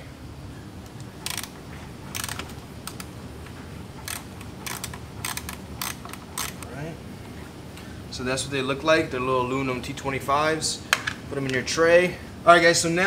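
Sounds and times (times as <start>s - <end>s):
cordless ratchet bursts: 0.8s - 3.2s, 3.9s - 6.7s.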